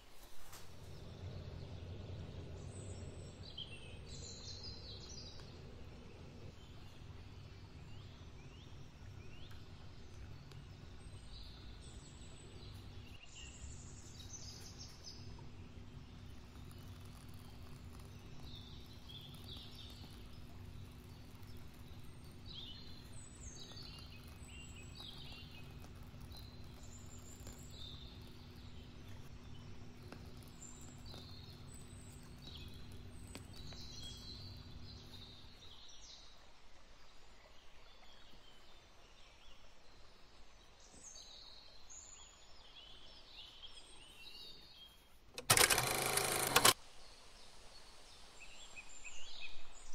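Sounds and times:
small birds chirping: 0.0s - 36.5s
faint steady hum: 0.0s - 49.9s.

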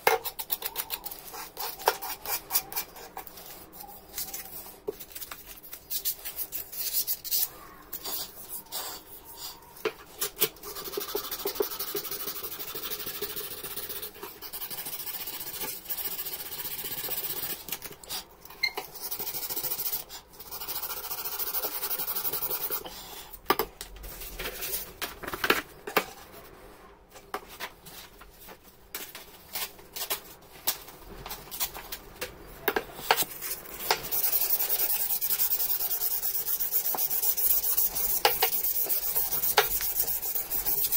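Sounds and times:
sandpaper scraping metal: 33.1s - 40.9s.

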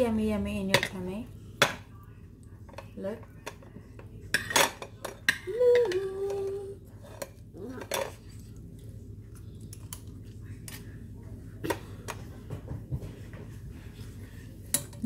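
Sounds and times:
person humming: 5.5s - 6.8s.

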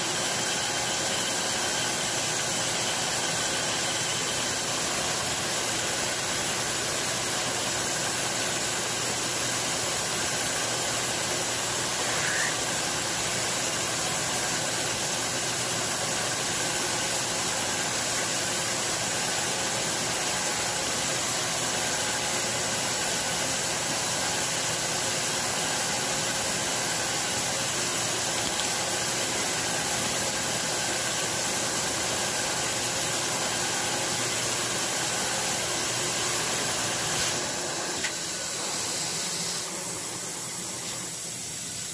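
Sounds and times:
mill spindle running: 0.0s - 41.9s
air nozzle hissing: 12.0s - 12.8s, 37.1s - 41.9s.

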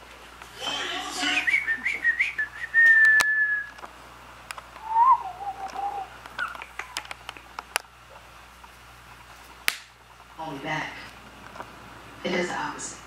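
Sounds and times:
person whistling two tones: 1.3s - 3.8s, 4.8s - 6.1s.

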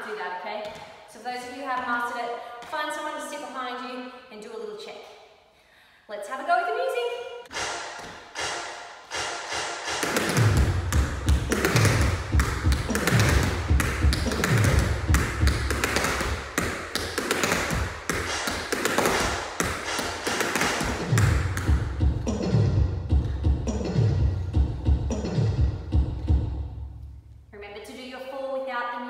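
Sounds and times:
music with low beat: 7.5s - 16.5s, 17.6s - 26.9s
tap shoes striking floor: 7.5s - 21.9s.

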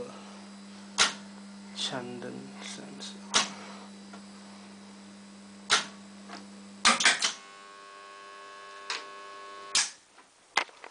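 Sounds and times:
low mains hum: 0.0s - 10.9s.

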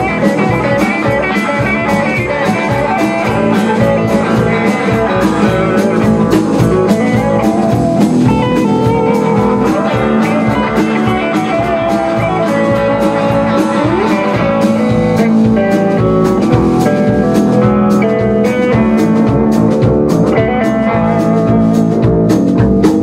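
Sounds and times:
bass guitar: 0.0s - 23.0s
drum kit steady beat: 0.0s - 23.0s
electric guitars: 0.0s - 23.0s.

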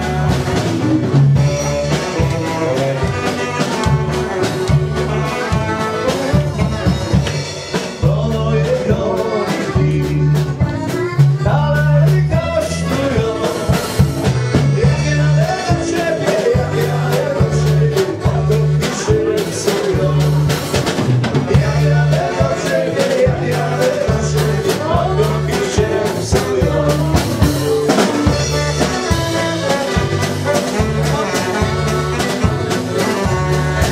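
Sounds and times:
accordion: 0.0s - 33.9s
bouncing bass line: 0.0s - 33.9s
drum kit: 0.0s - 33.9s
folk dance band playing: 0.0s - 33.9s
person singing: 1.3s - 4.8s, 7.8s - 20.8s, 21.4s - 33.9s.

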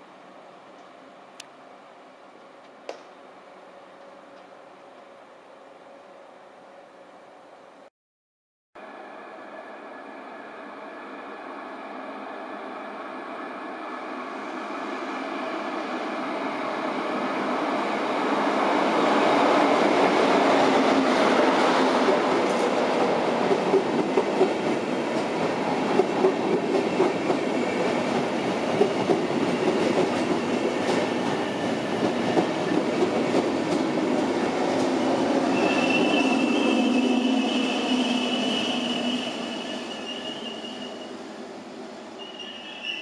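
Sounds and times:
train rolling past: 8.8s - 43.0s.

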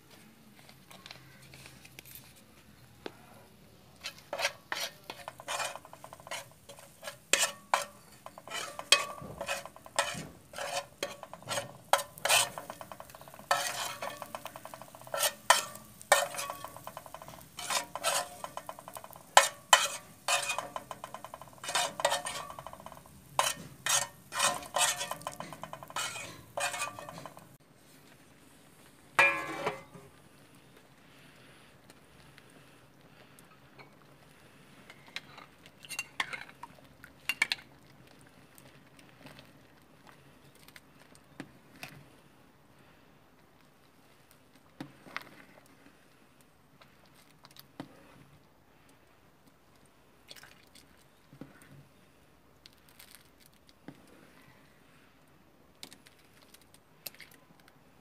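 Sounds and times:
metal spoon scraping frying pan: 4.0s - 27.6s, 29.2s - 30.1s, 34.9s - 36.7s
ringing metal clank: 29.2s - 30.0s.

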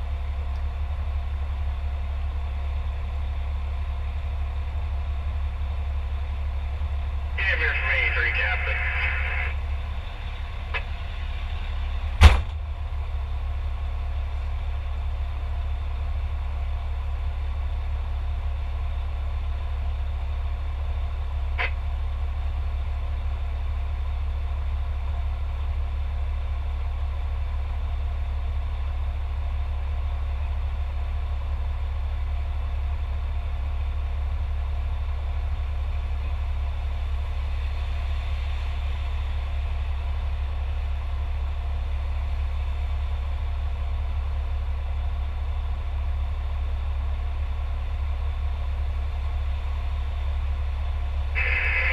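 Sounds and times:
diesel engine idling: 0.0s - 51.9s
sharp bang: 12.2s - 12.6s.

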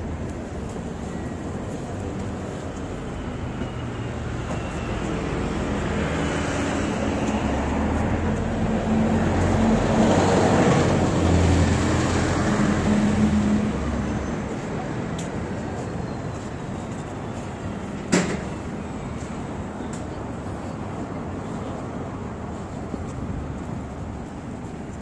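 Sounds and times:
vehicle approaching: 4.7s - 15.0s.

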